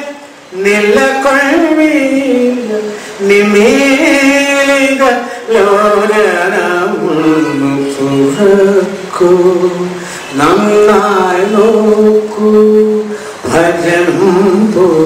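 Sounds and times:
man singing unaccompanied: 0:00.0 - 0:15.0
man breathing: 0:02.9 - 0:03.2, 0:05.2 - 0:05.5, 0:10.0 - 0:10.3, 0:13.1 - 0:13.4.

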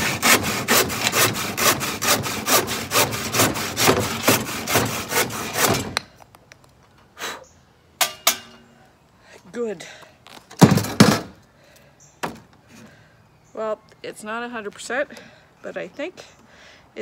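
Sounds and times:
hand saw cutting wood: 0:00.0 - 0:06.0.

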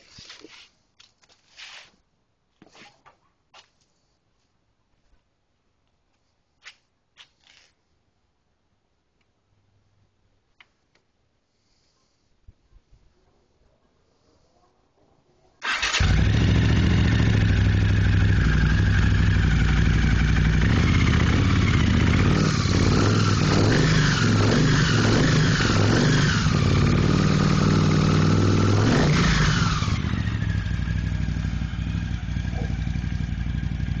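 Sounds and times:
motorcycle engine revving and idling: 0:15.6 - 0:34.0.

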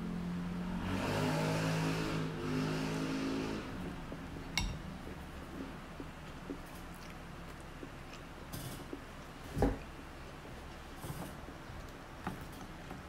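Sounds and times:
vehicle engine drone: 0:00.0 - 0:06.5.

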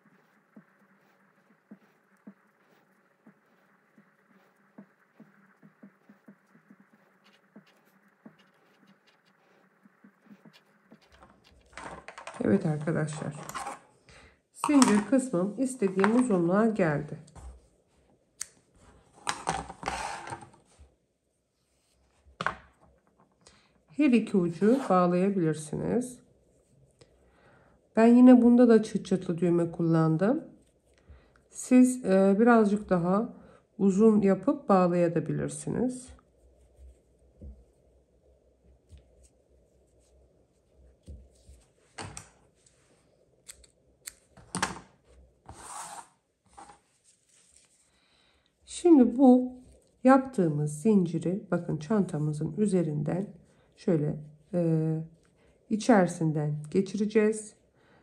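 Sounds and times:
scissors snipping yarn: 0:43.4 - 0:44.3
yarn rustling: 0:45.0 - 0:48.0.

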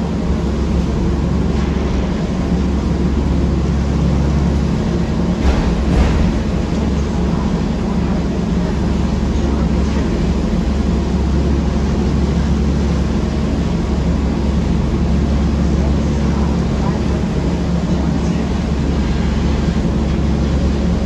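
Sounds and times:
bus engine drone: 0:00.0 - 0:21.0.

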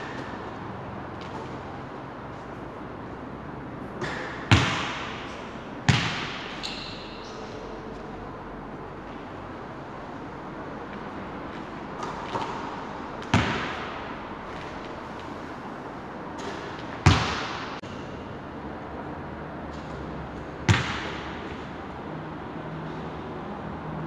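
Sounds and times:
basketball hitting hard: 0:03.9 - 0:06.6, 0:12.0 - 0:14.7, 0:16.4 - 0:17.8, 0:20.6 - 0:21.6.

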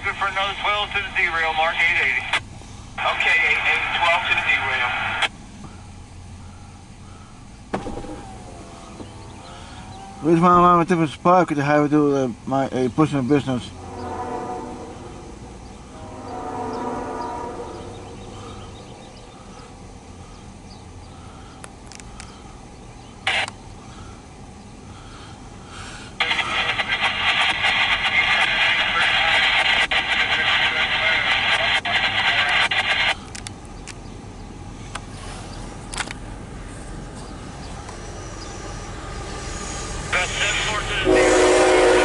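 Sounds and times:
radio static hiss: 0:00.0 - 0:13.8, 0:23.2 - 0:24.2, 0:25.1 - 0:33.5, 0:40.0 - 0:42.0
locomotive air horn blasts: 0:13.4 - 0:20.4, 0:39.4 - 0:42.0
faint clicks: 0:21.6 - 0:22.4, 0:32.7 - 0:34.1.

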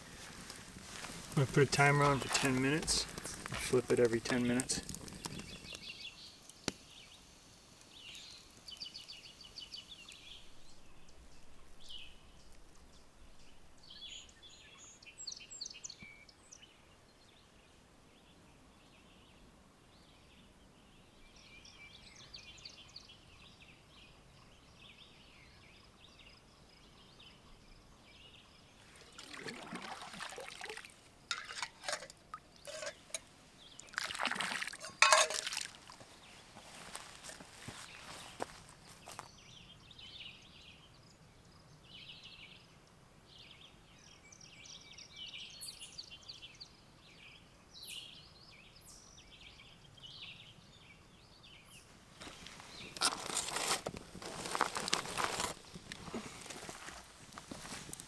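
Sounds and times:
songbirds singing: 0:00.0 - 0:57.0.

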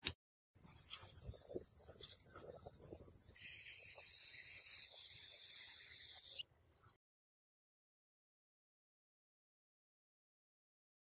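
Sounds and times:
airbrush spraying hiss: 0:00.6 - 0:06.4.

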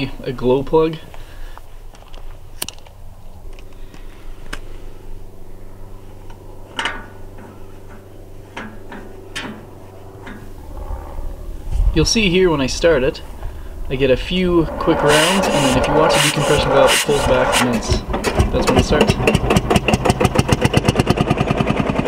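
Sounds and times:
low hum: 0:01.2 - 0:22.0
sharp metal clicks and knocks: 0:18.0 - 0:20.9.

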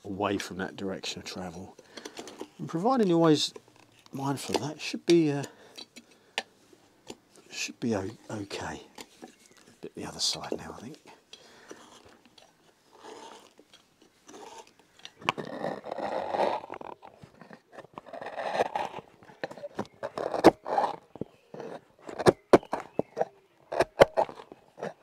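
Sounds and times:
gouge scraping wood: 0:11.5 - 0:13.7, 0:14.3 - 0:25.0.

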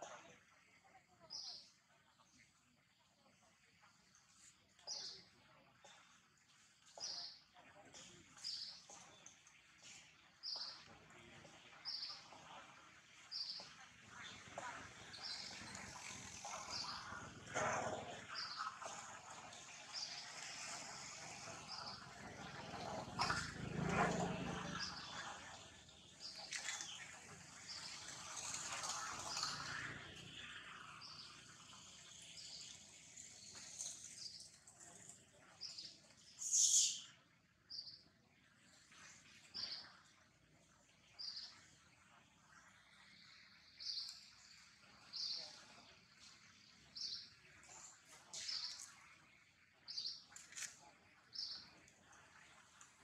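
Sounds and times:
birds chirping: 0:06.9 - 0:38.1, 0:43.1 - 0:52.7.

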